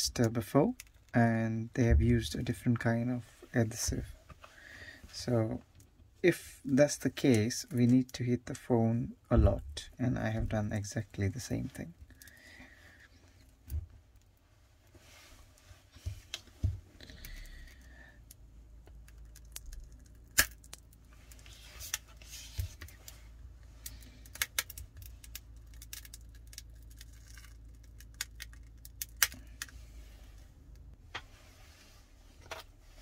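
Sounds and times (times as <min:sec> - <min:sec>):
low steady hum: 0:00.0 - 0:33.0.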